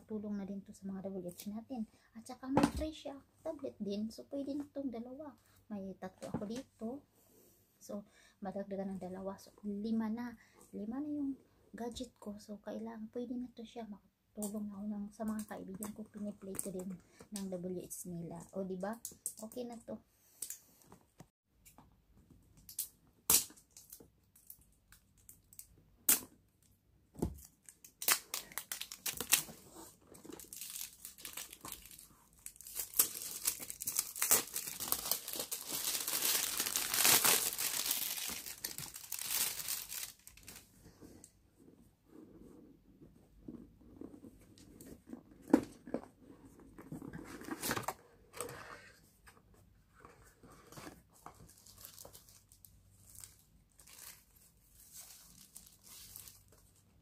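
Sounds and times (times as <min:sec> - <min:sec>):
packaging tearing and crinkling: 0:27.4 - 0:29.6, 0:30.2 - 0:40.6.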